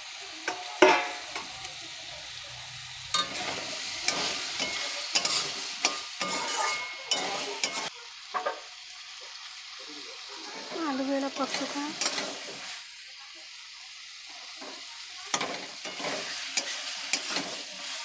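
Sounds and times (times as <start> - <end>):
vegetables sizzling: 0.0 - 18.0
metal spatula scraping a pan: 2.6 - 8.6, 10.6 - 12.8, 14.6 - 18.0.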